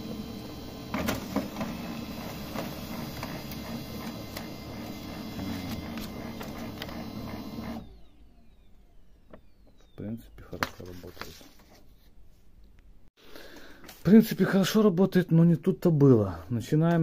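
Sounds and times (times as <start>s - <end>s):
printer motor running: 0.0s - 9.9s
paper feed clicks: 0.9s - 7.8s.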